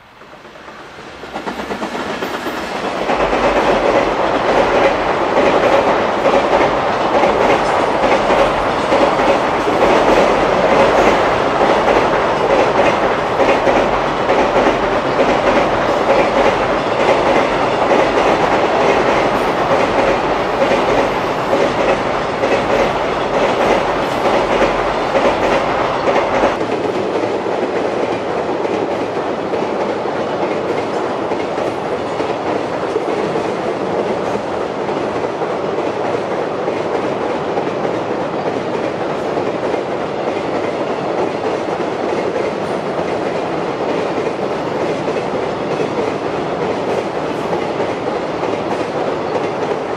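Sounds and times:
train crossing girder bridge: 0:00.0 - 0:49.9
train wheels clattering on rails: 0:00.2 - 0:49.9.

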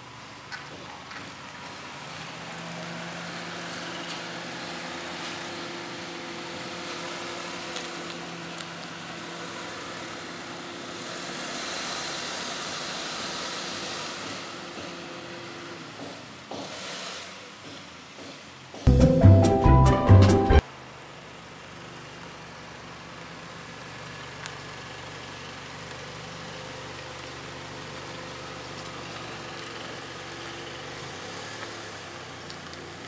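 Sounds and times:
hiss: 0:09.2 - 0:15.0, 0:16.0 - 0:18.5
car engine humming: 0:18.9 - 0:33.0.

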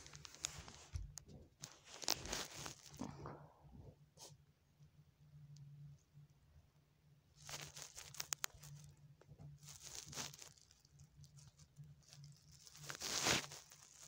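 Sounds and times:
scratching rustles: 0:00.0 - 0:03.1, 0:07.4 - 0:14.0.

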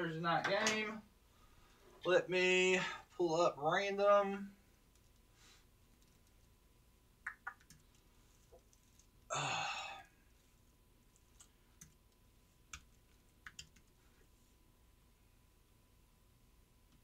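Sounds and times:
computer mouse and keyboard clicks: 0:05.9 - 0:06.5, 0:11.1 - 0:14.0.

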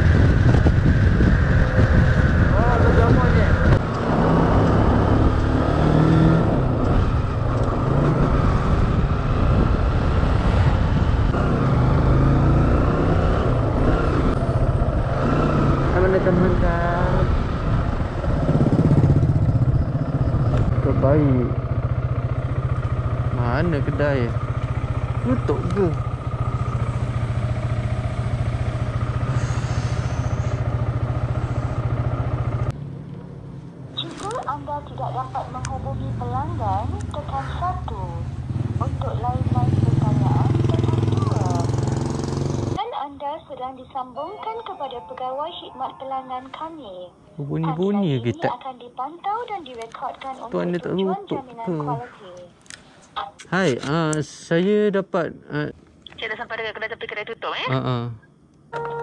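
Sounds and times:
motor scooter engine running: 0:18.2 - 0:32.7, 0:38.5 - 0:42.8.

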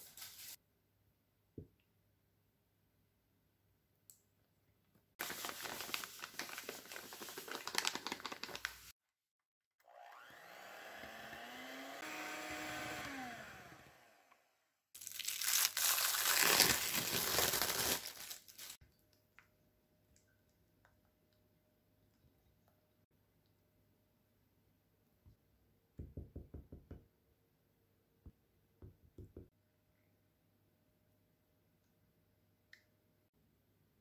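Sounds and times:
electric hand mixer whipping cream: 0:09.8 - 0:14.5.

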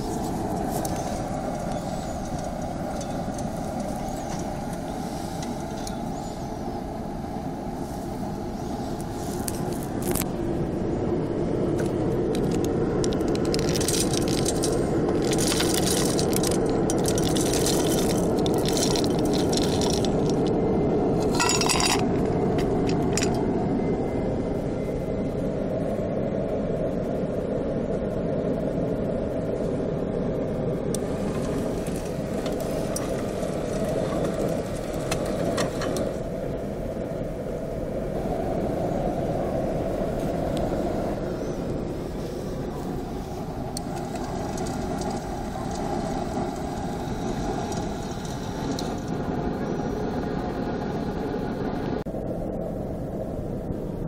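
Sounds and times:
pellet burner fan roaring: 0:00.0 - 0:54.0
wood pellets clattering: 0:12.4 - 0:20.5.

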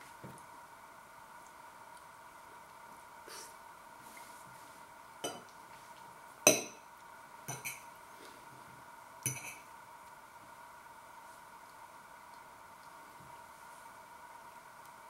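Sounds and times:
fork clinking on a ceramic plate: 0:07.5 - 0:07.8, 0:09.3 - 0:09.6.

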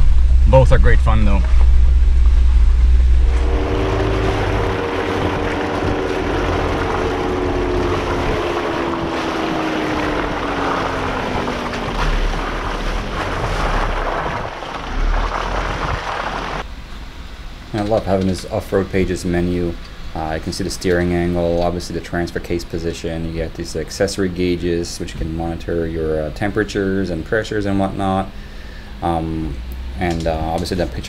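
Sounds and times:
car engine hum: 0:00.0 - 0:23.6
tyres on rough road: 0:00.0 - 0:31.0
wind rushing over microphone: 0:01.4 - 0:16.6.

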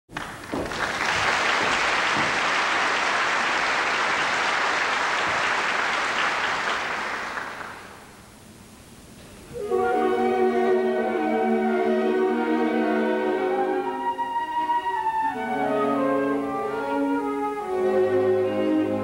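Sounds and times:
audience applauding: 0:00.1 - 0:08.1.

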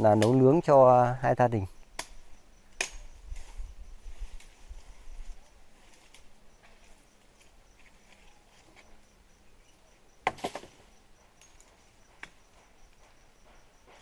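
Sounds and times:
insect chirping: 0:00.0 - 0:14.0
dry sticks snapping: 0:00.1 - 0:00.5, 0:01.9 - 0:03.5.

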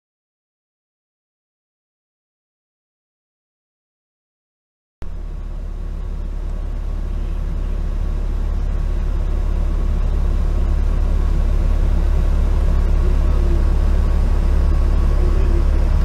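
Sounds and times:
road traffic rumble: 0:05.0 - 0:16.0.

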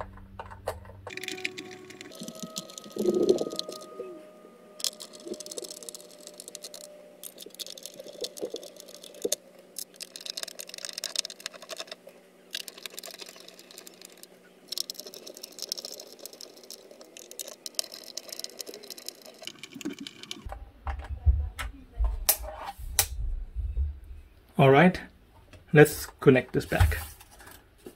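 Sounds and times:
plastic case clicking and scratching: 0:04.8 - 0:12.0.

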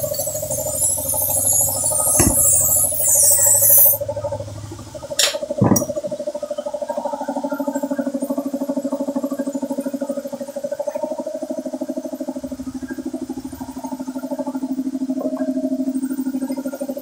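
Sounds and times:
speaker pulsing tone: 0:00.0 - 0:17.0
knocks: 0:05.2 - 0:06.1.

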